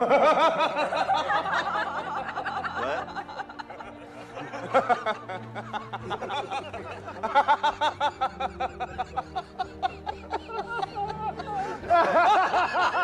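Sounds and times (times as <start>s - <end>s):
men laughing hard: 0.0s - 13.0s.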